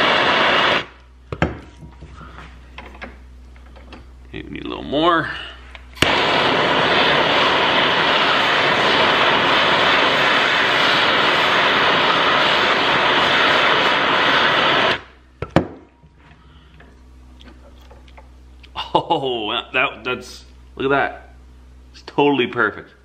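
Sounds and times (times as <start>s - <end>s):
torch flame hissing: 0.0s - 1.0s, 6.0s - 15.2s.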